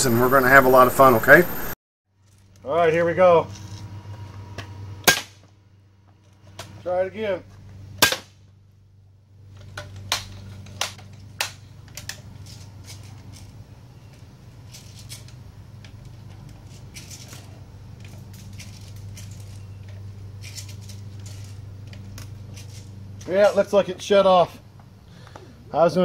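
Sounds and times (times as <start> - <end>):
television low hum: 0.0 - 1.8.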